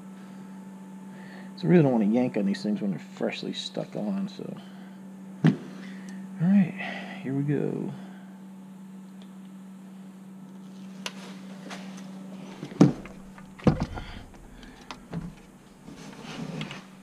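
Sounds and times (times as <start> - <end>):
steady low hum: 0.0 - 17.0
clicks and knocks of handled parts: 12.6 - 16.8
low bump: 12.7 - 15.9.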